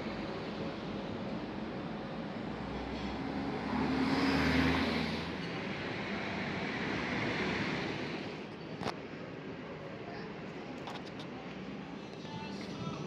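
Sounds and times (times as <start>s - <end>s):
street traffic: 0.0s - 13.0s
vehicle passing close by: 2.6s - 8.3s.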